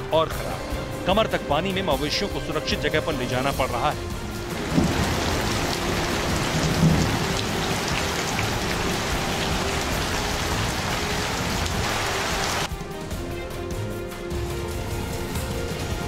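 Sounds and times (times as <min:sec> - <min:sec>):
heavy rain hissing: 0:03.2 - 0:12.7.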